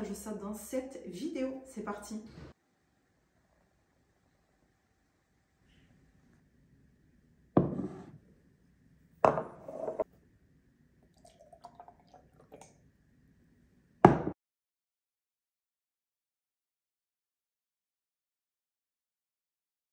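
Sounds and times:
liquid sounds: 11.0s - 12.9s.

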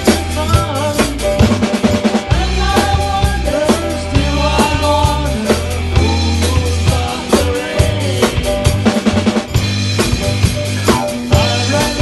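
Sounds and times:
bass guitar line: 0.0s - 12.0s
drum kit beat: 0.0s - 12.0s
electric guitar: 0.0s - 12.0s
keyboards: 0.0s - 12.0s.

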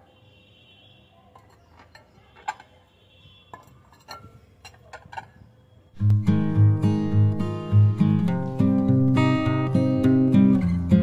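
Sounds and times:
glass plates clinking: 1.3s - 2.8s, 3.5s - 5.4s.

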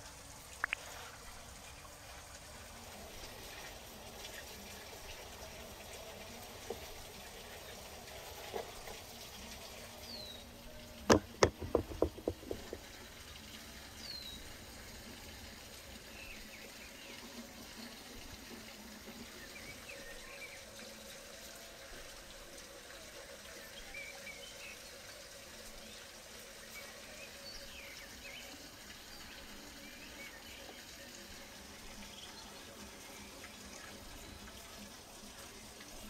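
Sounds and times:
outdoor hiss: 0.0s - 36.0s
sharp knocks: 11.1s - 12.8s.

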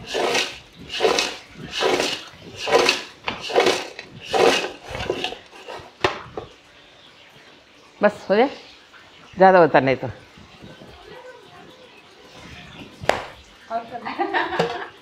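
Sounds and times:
fritters rattling in metal pot: 0.0s - 6.1s.

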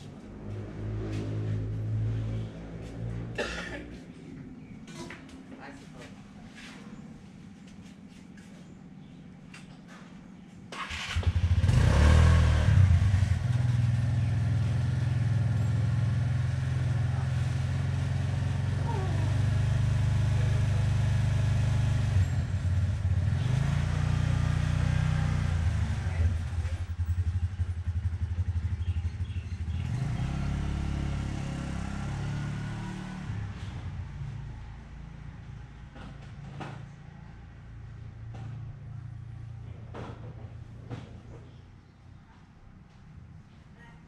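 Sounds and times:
engine cranking and starting: 10.7s - 12.3s
engine running: 10.8s - 37.0s.

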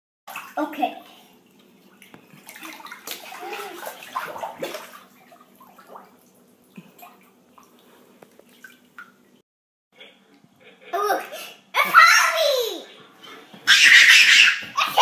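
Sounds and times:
water sloshing in a bathtub: 0.3s - 9.4s.

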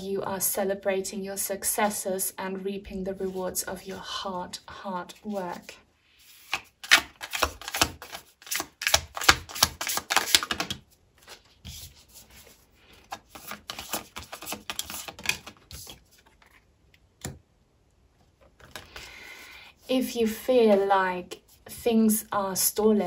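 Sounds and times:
cards being shuffled: 6.3s - 17.4s, 18.4s - 19.2s.

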